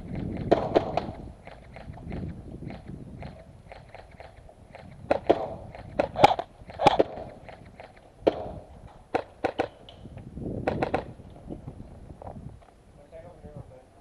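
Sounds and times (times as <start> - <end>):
airsoft rifle shots: 0.0 - 10.0, 10.6 - 11.2.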